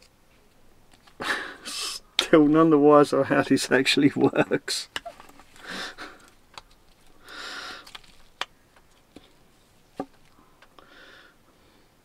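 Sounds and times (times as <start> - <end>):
short breathy hisses: 1.3 - 2.1
small parts clicking and tapping: 6.2 - 9.3.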